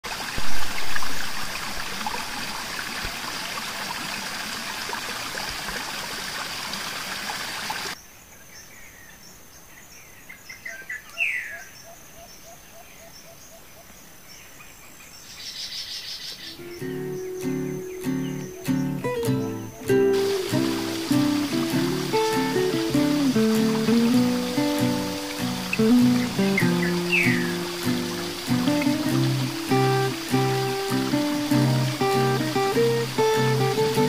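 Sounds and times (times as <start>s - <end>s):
river water rushing: 0.1s - 8.0s, 16.6s - 34.0s
insect buzz: 15.9s - 34.0s
birds chirping and whistling: 16.4s - 34.0s
high insect whine: 16.6s - 34.0s.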